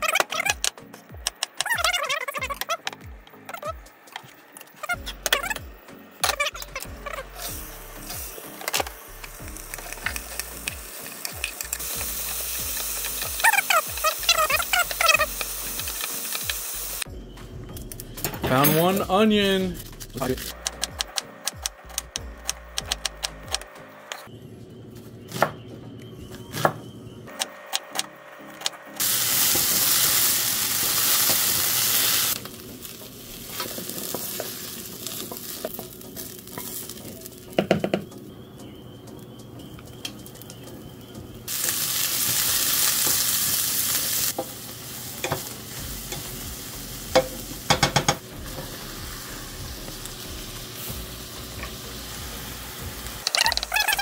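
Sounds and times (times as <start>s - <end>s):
food sizzling in hot oil: 7.0s - 17.1s, 29.0s - 37.7s, 41.5s - 54.0s.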